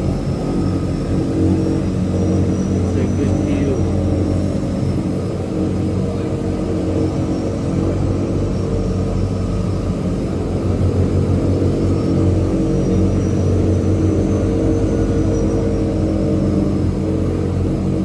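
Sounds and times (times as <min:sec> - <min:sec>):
turboprop engine drone: 0:00.0 - 0:18.0.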